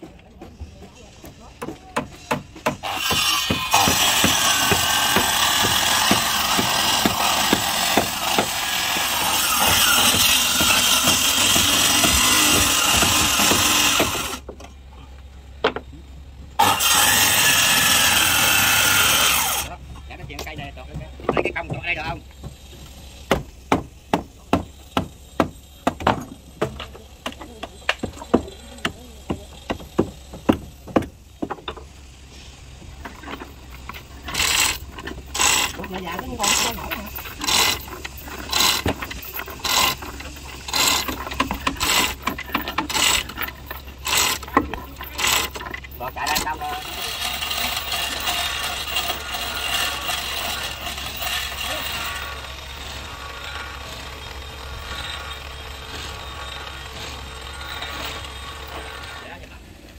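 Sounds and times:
sharp blows on wood: 1.6 - 14.4
power tool running: 2.3 - 14.5, 16.6 - 32.1, 32.7 - 59.9.

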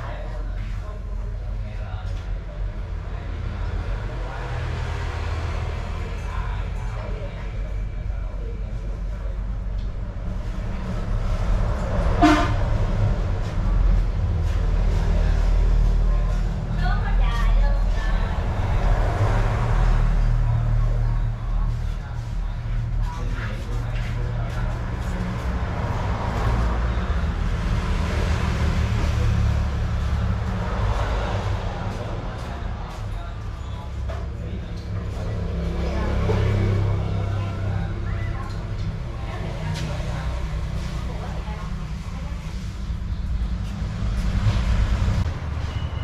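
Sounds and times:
road noise: 0.0 - 46.0
vehicle rumble in motion: 0.0 - 46.0
short horn honk: 12.2 - 12.7.

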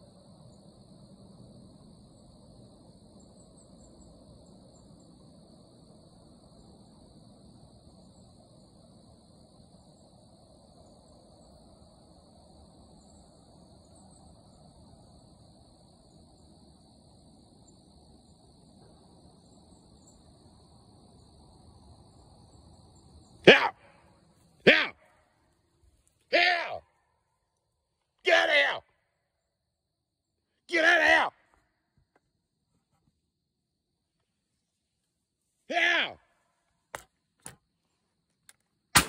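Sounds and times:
low outdoor rumble: 0.0 - 26.3
high-pitched insect chorus: 0.0 - 39.0.

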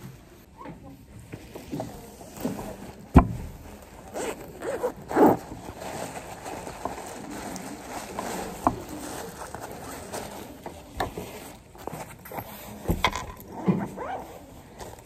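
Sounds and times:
backpack fabric rustling: 1.4 - 15.0
zipper being pulled: 4.0 - 6.8, 11.2 - 15.0.

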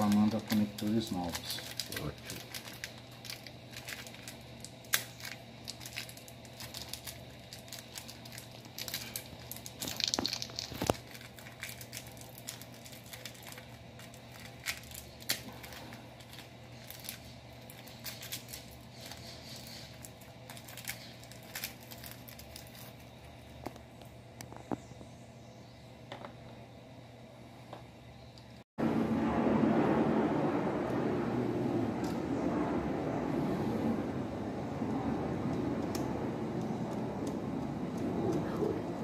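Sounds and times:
crinkling handling noise: 0.0 - 25.2
faint steady hum: 0.0 - 39.0.

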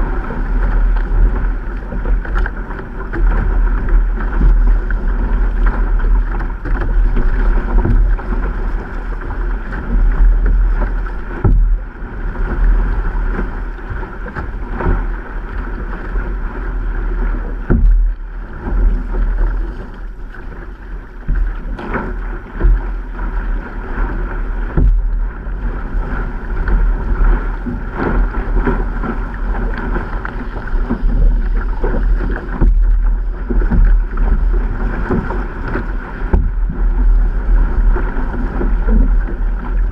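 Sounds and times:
water rushing along canoe hull: 0.0 - 39.9
wind rumble on microphone: 0.0 - 39.9.

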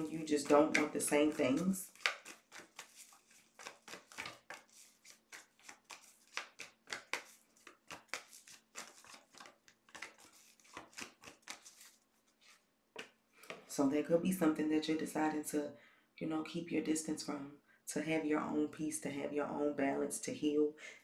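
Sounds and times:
cards being shuffled: 0.0 - 13.6.

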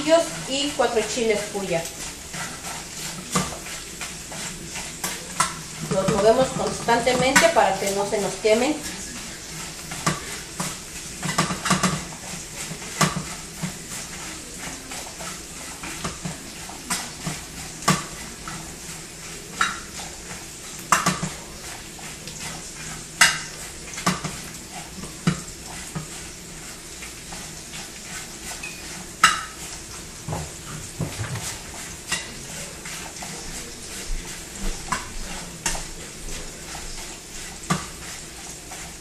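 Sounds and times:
metal tongs clanking on grill rack: 4.9 - 8.7.

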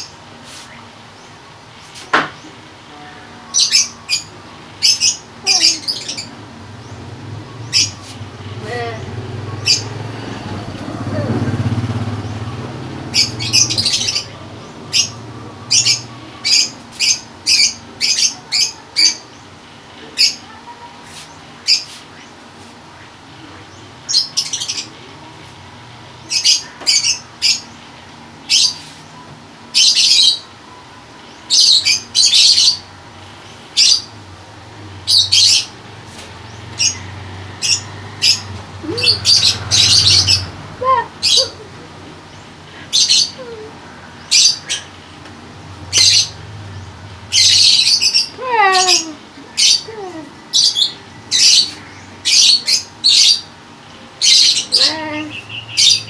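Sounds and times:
small birds chirping: 0.0 - 56.0.

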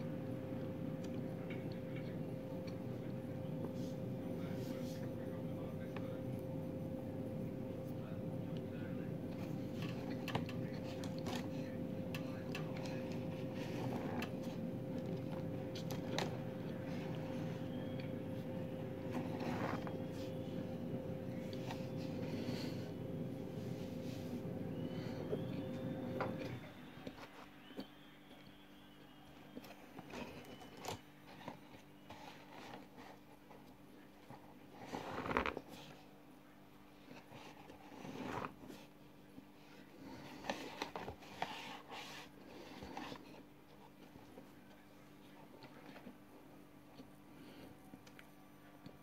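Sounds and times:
electrical hum: 0.0 - 49.0
noisy draw through straw: 19.0 - 20.5.

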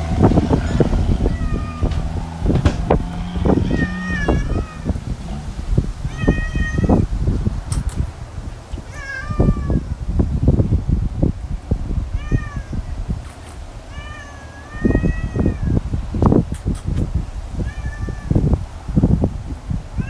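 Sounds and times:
low thumps and rumble: 0.0 - 13.7, 14.8 - 19.5
cat meowing: 1.2 - 2.0, 3.5 - 5.0, 6.0 - 7.1, 8.8 - 10.0, 12.2 - 12.8, 13.9 - 15.8, 17.6 - 18.4.

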